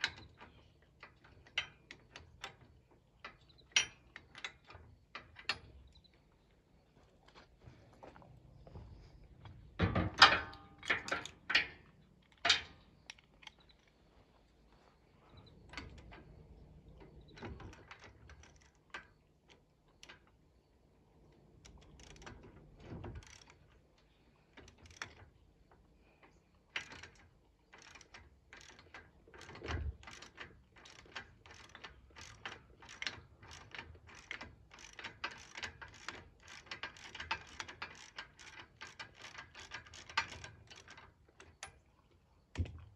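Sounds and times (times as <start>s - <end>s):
ratchet wrench clicking: 27.8s - 41.0s.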